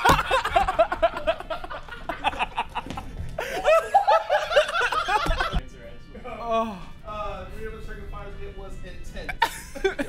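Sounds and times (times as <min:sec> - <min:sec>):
people laughing: 0:00.0 - 0:06.6, 0:09.3 - 0:10.0
background music: 0:00.0 - 0:10.0.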